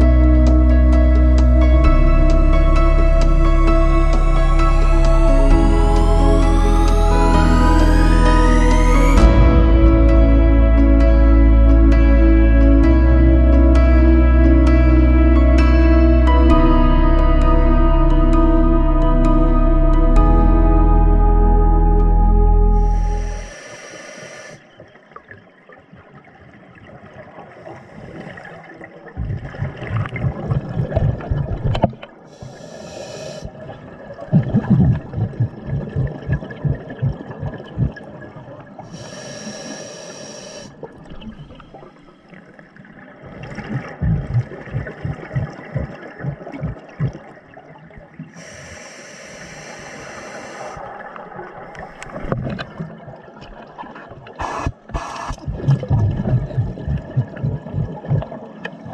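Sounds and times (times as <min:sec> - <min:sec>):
scuba regulator inhale hiss: 0:22.8 - 0:24.6, 0:27.6 - 0:28.6, 0:32.3 - 0:33.5, 0:38.9 - 0:40.8, 0:48.3 - 0:50.8, 0:54.4 - 0:55.4
bubbling exhaust: 0:29.2 - 0:33.7, 0:34.3 - 0:39.0, 0:43.4 - 0:47.4, 0:54.2 - 0:58.9.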